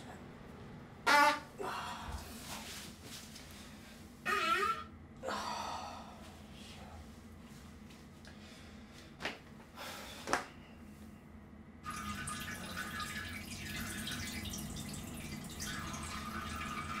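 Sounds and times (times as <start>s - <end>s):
water trickling and dripping: 11.9s - 17.0s.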